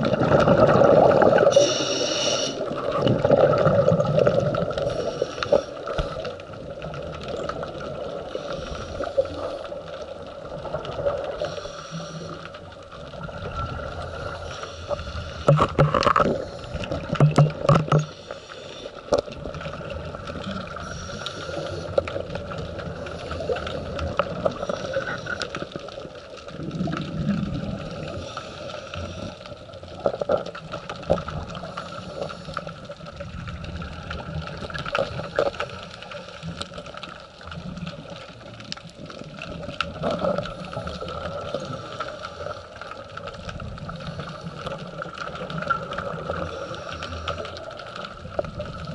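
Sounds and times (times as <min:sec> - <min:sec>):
diver's breathing bubbles gurgling: 0:00.0 - 0:48.9
steady underwater hum: 0:00.0 - 0:48.9
sharp clicks and knocks: 0:15.4 - 0:16.3, 0:17.1 - 0:18.2.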